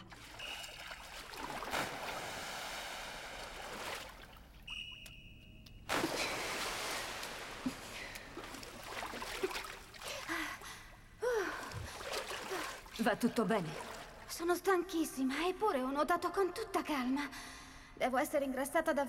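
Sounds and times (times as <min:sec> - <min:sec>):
pool water splashing: 0:00.0 - 0:04.7, 0:05.9 - 0:10.3.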